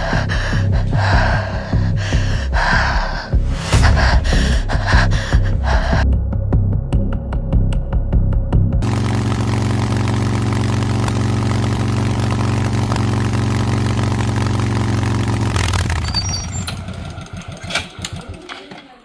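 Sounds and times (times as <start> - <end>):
small motorcycle engine running: 8.8 - 19.0.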